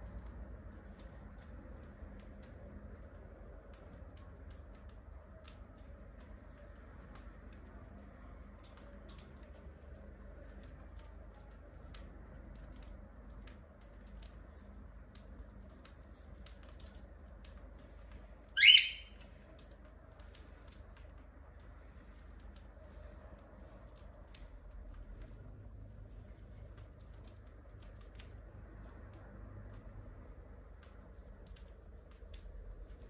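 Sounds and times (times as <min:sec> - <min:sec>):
birds pecking seed clicks: 0:00.0 - 0:33.0
bird squawk: 0:18.6 - 0:19.1.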